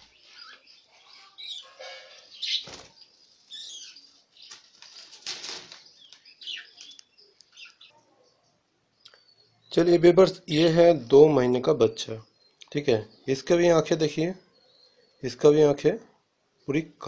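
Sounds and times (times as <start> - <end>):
budgerigars fluttering wings: 2.4 - 7.0.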